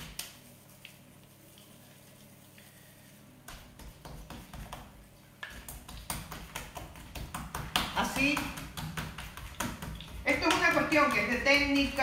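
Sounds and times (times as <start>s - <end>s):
hands patting dough: 0.0s - 1.8s, 3.3s - 12.0s.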